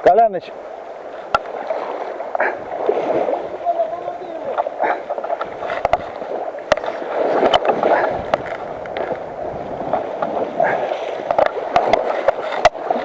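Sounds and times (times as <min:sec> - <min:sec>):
river current rushing and splashing: 0:00.0 - 0:13.0
small knocks: 0:04.5 - 0:06.9.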